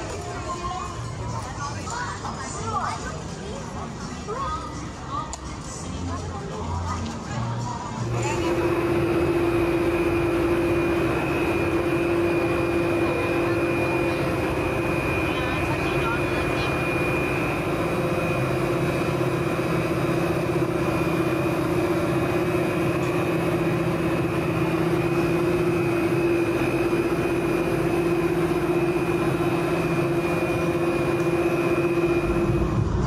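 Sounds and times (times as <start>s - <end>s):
cable car mechanical drone: 0.0s - 33.0s
high whine: 7.9s - 33.0s.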